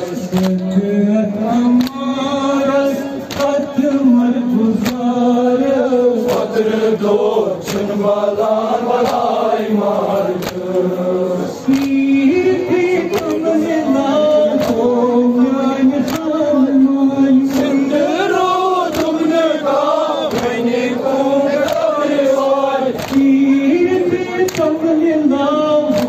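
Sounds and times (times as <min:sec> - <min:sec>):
men chanting a lament: 0:00.0 - 0:26.0
person reciting into microphone: 0:00.0 - 0:26.0
chest-beating slaps: 0:03.3 - 0:03.6, 0:04.8 - 0:05.1, 0:07.6 - 0:10.8, 0:11.6 - 0:12.2, 0:13.1 - 0:13.5, 0:14.6 - 0:14.9, 0:16.0 - 0:16.4, 0:17.4 - 0:23.4.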